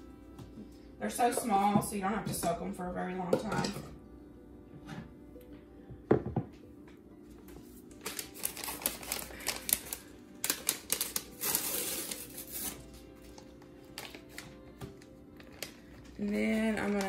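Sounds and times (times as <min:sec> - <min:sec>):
packet crinkling and crackling: 0:07.9 - 0:17.0.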